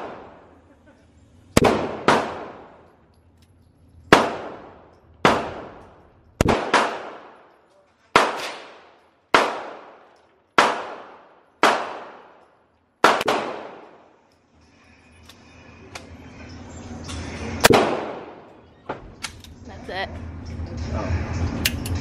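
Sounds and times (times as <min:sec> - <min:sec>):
handgun shots echoing indoors: 0:08.1 - 0:12.4.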